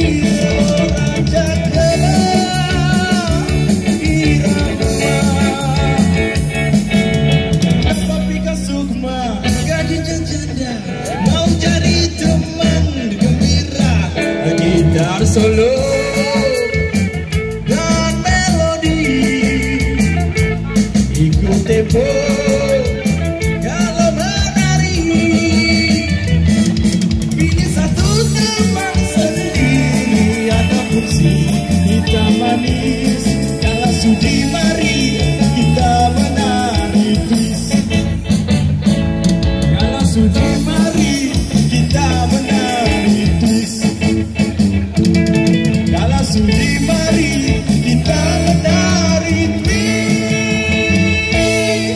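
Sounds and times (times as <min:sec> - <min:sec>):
bass guitar: 0:00.0 - 0:51.9
drums keeping a steady beat: 0:00.0 - 0:51.9
electric guitar: 0:00.0 - 0:51.9
wavering lead melody: 0:14.2 - 0:51.9.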